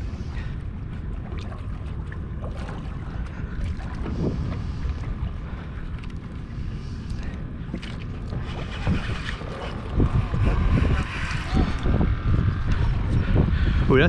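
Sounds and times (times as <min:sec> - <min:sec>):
water lapping at boat hull: 0:00.0 - 0:13.8
wind buffeting microphone: 0:00.0 - 0:14.0.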